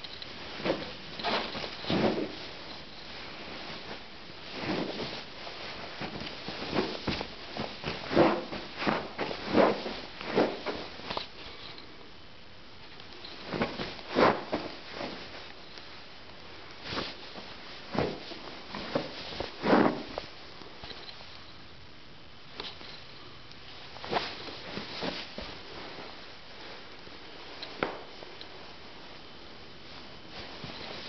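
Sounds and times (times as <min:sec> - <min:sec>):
boots scuffing and knocking: 0:06.0 - 0:10.9.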